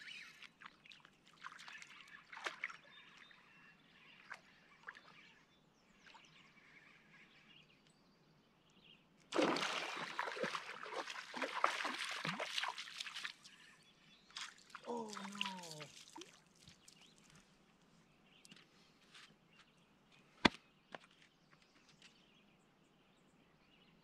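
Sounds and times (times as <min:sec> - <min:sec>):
splashing in shallow water: 0:00.0 - 0:05.3, 0:09.3 - 0:17.4.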